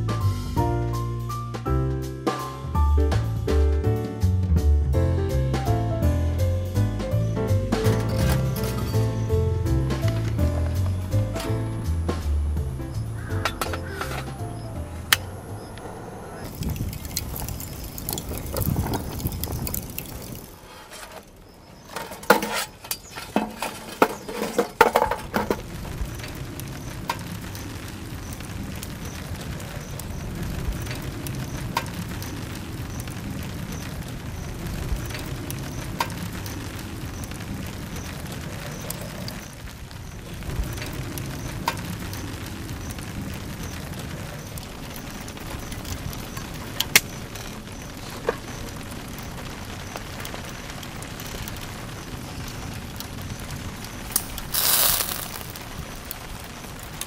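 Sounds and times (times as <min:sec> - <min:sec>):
charcoal clattering against metal: 0:07.8 - 0:09.3, 0:13.2 - 0:14.4, 0:16.4 - 0:28.4, 0:54.1 - 0:55.7.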